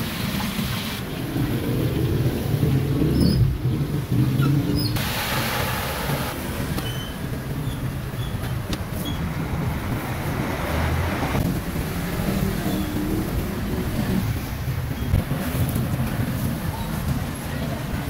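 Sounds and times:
motorbike and car engines passing: 8.8 - 16.8.

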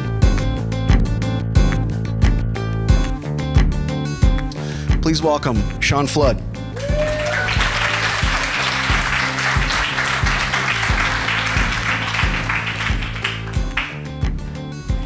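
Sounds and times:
background music with steady beat: 0.0 - 15.0
audience applauding: 6.8 - 14.2.

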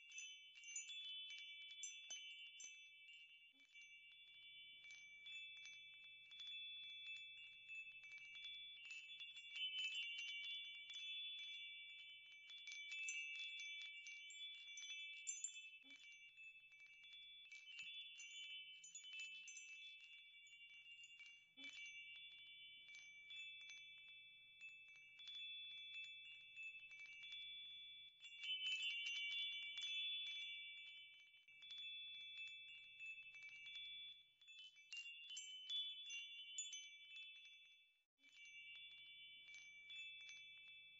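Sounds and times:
wind chimes ringing: 0.0 - 40.9.

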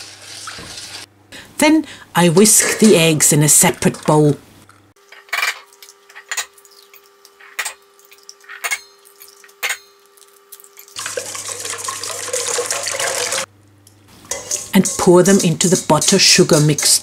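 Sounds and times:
eggs whisked in metal bowl: 10.9 - 13.5, 14.3 - 17.0.

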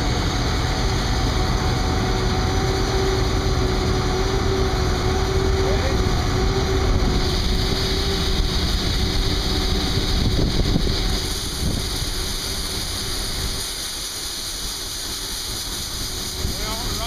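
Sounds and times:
combine harvester rumbling: 0.0 - 17.0
wind noise on microphone: 4.9 - 13.6
high hiss: 7.2 - 17.0.

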